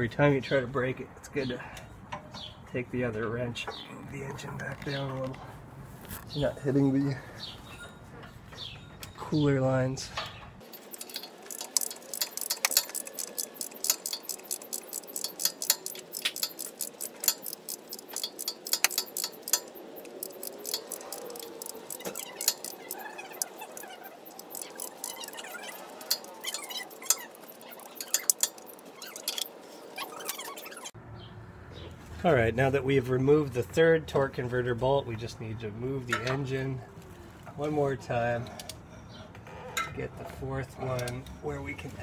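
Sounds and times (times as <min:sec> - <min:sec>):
wrench metal clicks: 0:10.2 - 0:30.9.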